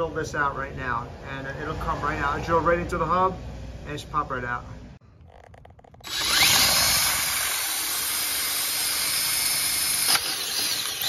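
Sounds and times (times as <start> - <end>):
power drill whining: 5.2 - 11.0.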